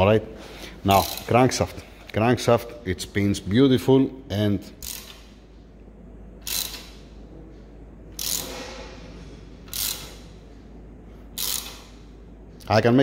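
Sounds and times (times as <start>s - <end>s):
socket ratchet clicking: 4.8s - 5.4s, 6.4s - 7.1s, 8.2s - 8.6s, 9.7s - 10.4s, 11.4s - 12.0s.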